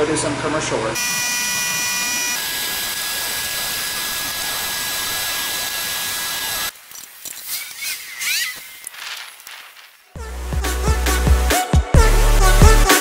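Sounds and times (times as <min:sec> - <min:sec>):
carpet cleaning machine whine: 0:01.0 - 0:06.7
hose handling clatter: 0:06.8 - 0:09.8.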